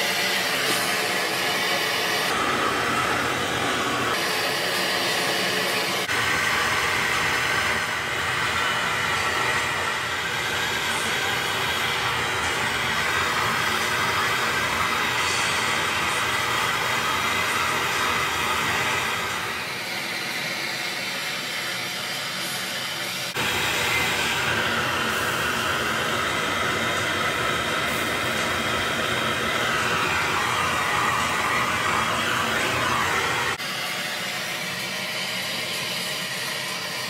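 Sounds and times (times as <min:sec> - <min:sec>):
gas torch flame rushing: 0:00.0 - 0:20.2, 0:23.3 - 0:33.6.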